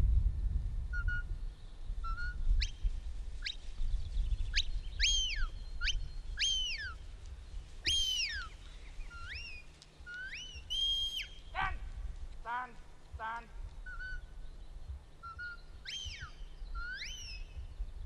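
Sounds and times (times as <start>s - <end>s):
shepherd's whistles: 4.5s - 7.0s, 7.9s - 8.5s, 9.1s - 11.4s, 13.9s - 14.2s, 15.2s - 17.6s.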